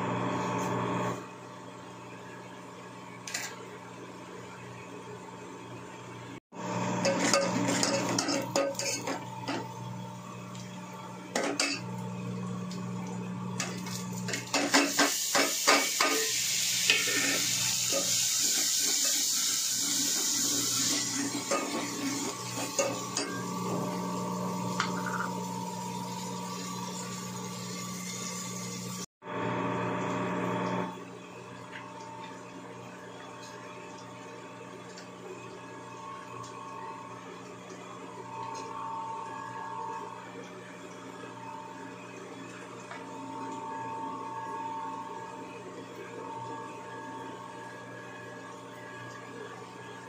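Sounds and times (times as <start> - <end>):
masala sizzling: 13.3 - 29.1.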